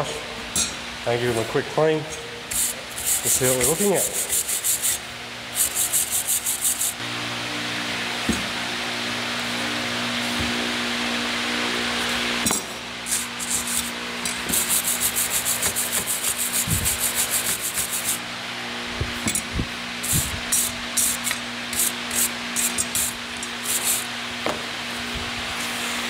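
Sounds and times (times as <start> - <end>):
wire brush scrubbing metal pipes: 2.5 - 7.0, 13.0 - 18.2, 20.0 - 24.1.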